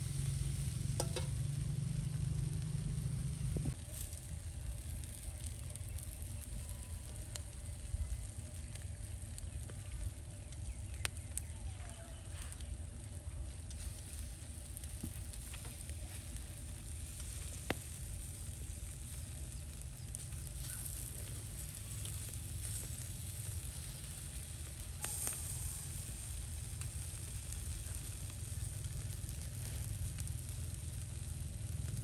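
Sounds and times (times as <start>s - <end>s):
low rumble: 0.0s - 32.0s
meat sizzling on a grill: 0.0s - 32.0s
metal tongs clicking on grill: 1.0s - 1.4s.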